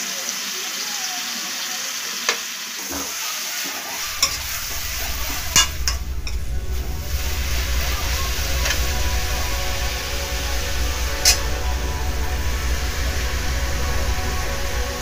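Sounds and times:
onions sizzling in oil: 0:00.0 - 0:15.0
low hum: 0:04.0 - 0:15.0
spatula striking pan: 0:11.2 - 0:11.4.

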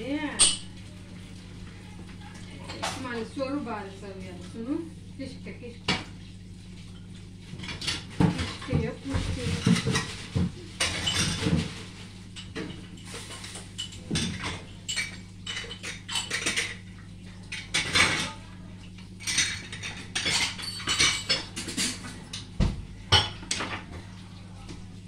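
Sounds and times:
dishes and cutlery clattering: 0:07.6 - 0:18.4, 0:19.2 - 0:22.5, 0:23.1 - 0:24.0.

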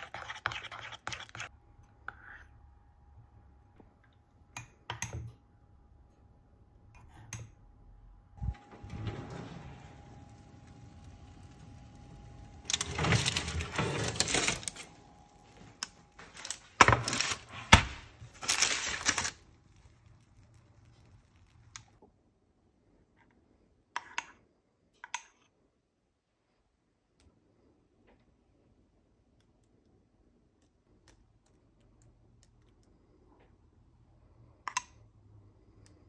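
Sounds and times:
baking tray scraping on oven rack: 0:08.4 - 0:15.6.

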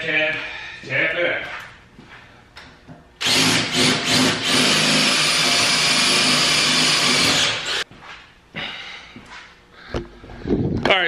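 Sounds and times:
power drill running: 0:03.2 - 0:07.8.

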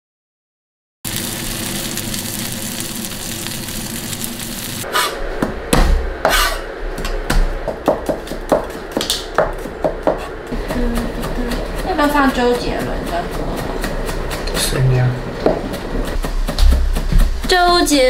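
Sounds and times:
fish sizzling in a frying pan: 0:01.1 - 0:04.9
cleaver chopping on wooden board: 0:05.7 - 0:14.6.

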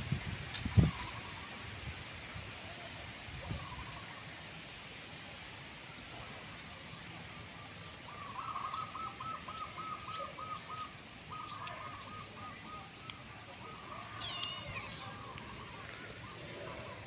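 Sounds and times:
faint outdoor background hiss: 0:00.0 - 0:17.0
bird calling short notes: 0:14.2 - 0:15.4.

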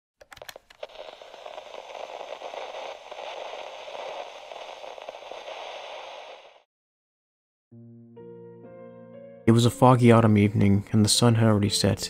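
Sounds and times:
crackling static hiss: 0:00.4 - 0:06.7.

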